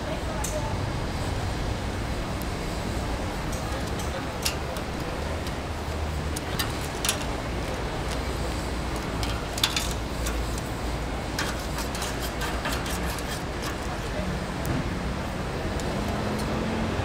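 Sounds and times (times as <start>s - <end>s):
metal tongs clicking on grill: 3.5s - 8.2s, 8.9s - 10.7s, 11.3s - 14.1s.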